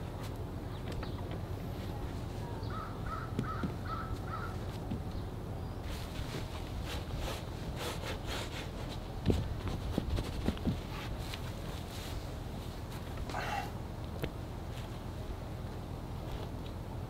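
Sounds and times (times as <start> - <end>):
steady low rumble: 0.0 - 17.0
bird calling: 2.5 - 5.9.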